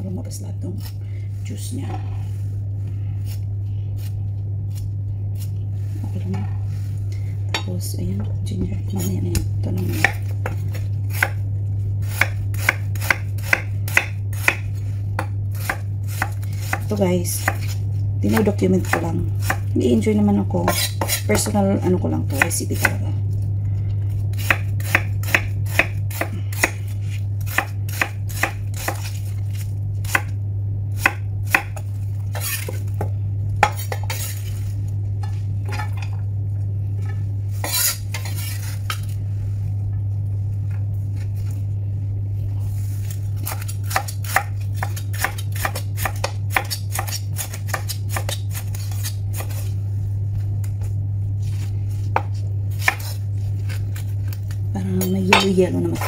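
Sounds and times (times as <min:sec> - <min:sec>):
steady low hum: 0:00.0 - 0:56.0
knife chopping on wooden board: 0:12.2 - 0:17.7, 0:24.4 - 0:26.8, 0:27.5 - 0:29.1, 0:31.0 - 0:32.8, 0:33.6 - 0:34.3.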